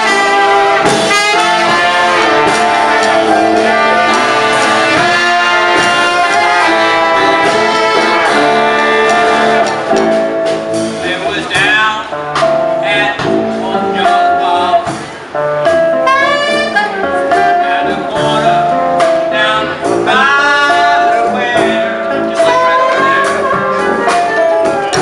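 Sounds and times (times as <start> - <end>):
man singing: 0.0 - 10.2, 10.9 - 25.0
saxophones playing: 0.0 - 11.2, 11.8 - 25.0
drum kit: 0.0 - 25.0.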